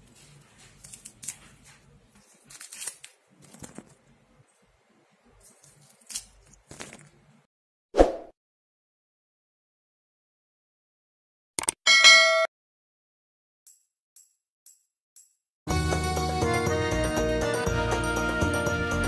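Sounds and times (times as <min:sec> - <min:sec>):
leaves being torn by hand: 0:00.6 - 0:04.0, 0:05.4 - 0:07.2.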